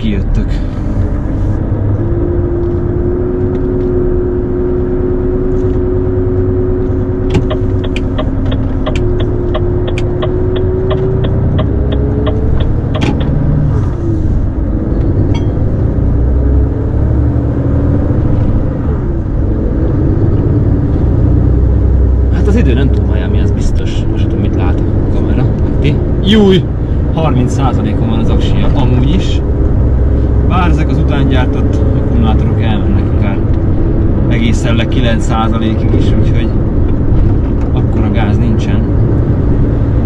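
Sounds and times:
truck engine rumble: 0.0 - 40.0
sharp click: 7.3 - 13.4
regular ticking: 7.3 - 13.6.

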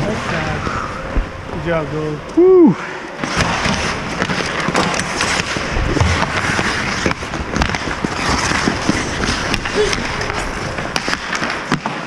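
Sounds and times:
hockey sticks and puck clacking: 3.2 - 12.0
skate blades scraping ice: 3.2 - 12.0.

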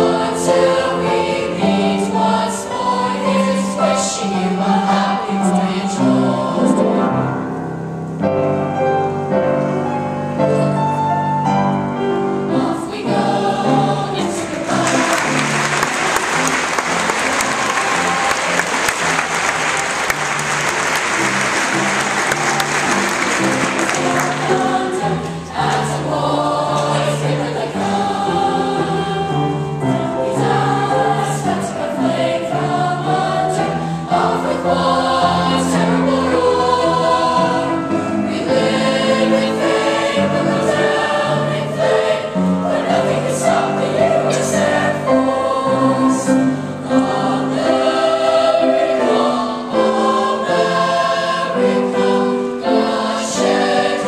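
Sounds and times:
children's choir singing: 0.0 - 7.6, 11.5 - 54.0
audience applause: 14.5 - 25.1.

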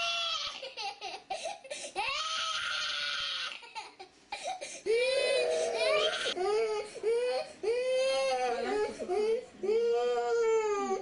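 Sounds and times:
toddler crying: 4.9 - 11.0.

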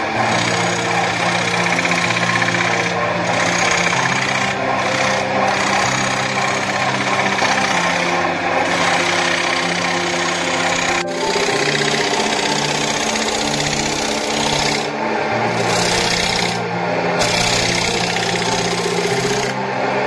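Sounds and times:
background music with low notes: 0.0 - 20.0
wood lathe tool cutting wood: 0.0 - 20.0.

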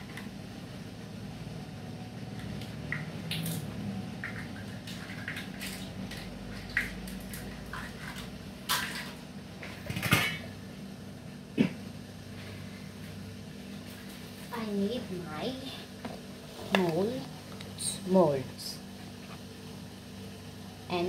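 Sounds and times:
steady low hum: 0.0 - 21.0
kitchenware clattering: 7.7 - 10.5
dishes and utensils clinking: 9.8 - 10.5.

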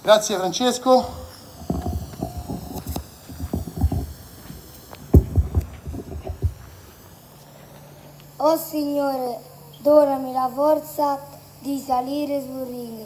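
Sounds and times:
phone handling thumps: 5.0 - 6.7.

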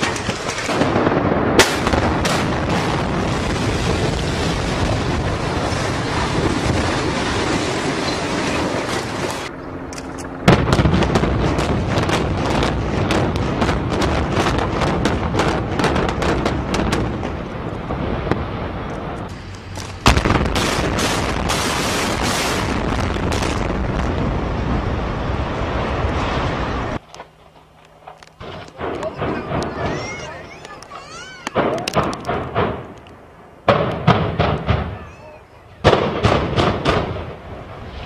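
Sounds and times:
building collapsing: 0.0 - 9.5
demolition charges cracking: 0.0 - 9.5.

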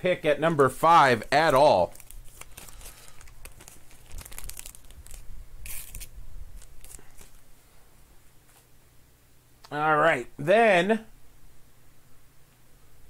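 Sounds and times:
packaging crinkling and rustling: 0.5 - 7.5
packaging tearing: 0.6 - 7.4.

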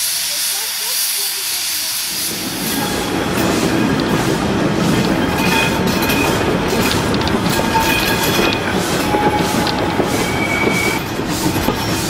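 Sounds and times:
train wheels rumbling on rails: 0.0 - 12.0
clicks over rail joints: 5.0 - 10.2
wheel flange squeals: 5.1 - 12.0.

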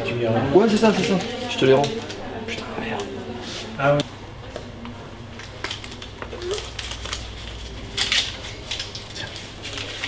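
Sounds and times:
paper banknotes rustling: 5.4 - 10.0.

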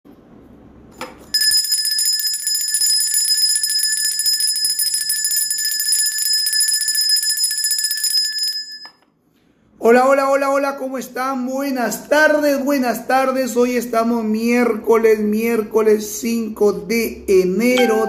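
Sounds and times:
handbell ringing: 1.3 - 8.9, 17.8 - 18.0.

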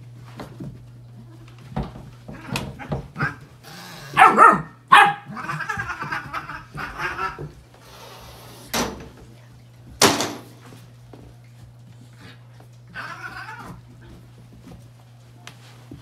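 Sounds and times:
puppy barking and yipping: 4.1 - 7.4.

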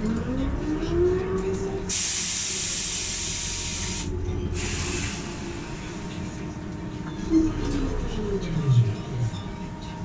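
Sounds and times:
bus running noise: 0.0 - 10.0
compressed air hissing: 1.9 - 5.7.

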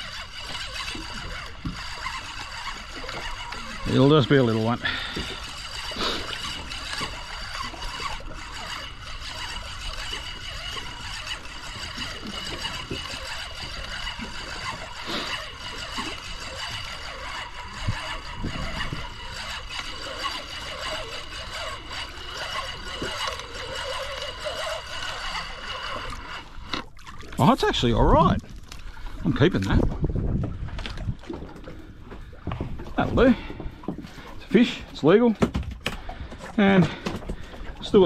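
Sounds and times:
waves lapping against boat hull: 0.0 - 38.0.

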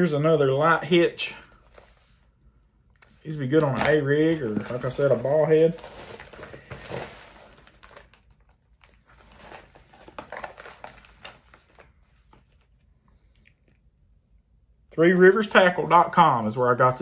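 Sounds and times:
plastic packaging crinkling: 3.4 - 12.9.

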